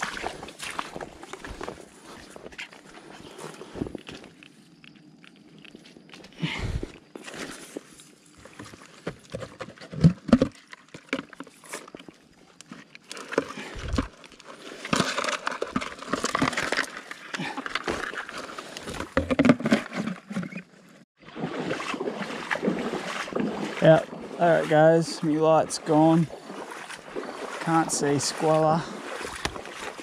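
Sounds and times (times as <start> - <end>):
footsteps in mud: 0.0 - 20.6, 21.3 - 30.0
rustling and scraping: 0.3 - 21.0.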